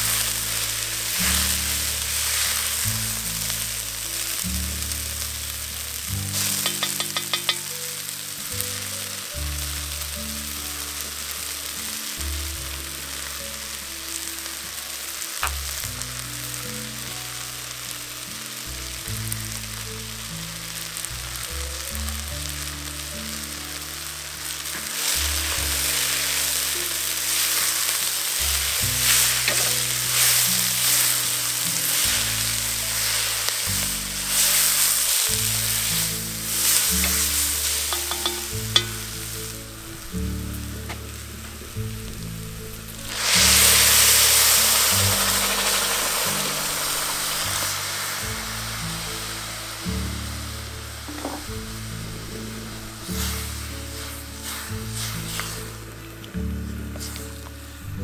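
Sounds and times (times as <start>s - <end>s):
background music with low notes: 0.0s - 58.0s
vegetables sizzling in oil: 0.0s - 58.0s
utensil stirring: 6.3s - 7.8s, 24.9s - 39.6s, 52.3s - 56.3s.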